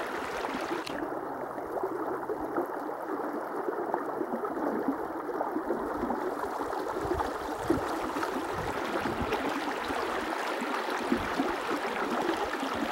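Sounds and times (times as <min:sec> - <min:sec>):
river water rushing: 0:00.0 - 0:00.9.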